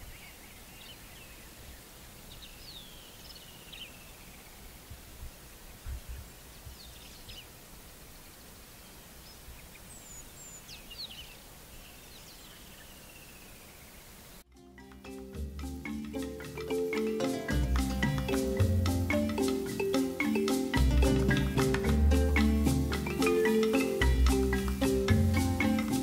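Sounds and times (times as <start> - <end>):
steady background hiss: 0.0 - 26.0
wild birds calling: 14.7 - 26.0.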